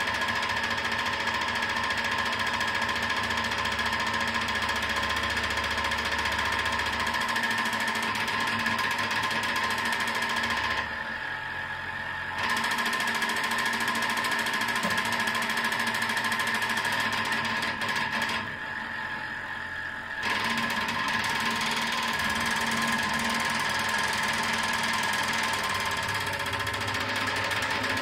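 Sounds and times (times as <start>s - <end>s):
high buzzing rattle: 20.2s - 28.0s.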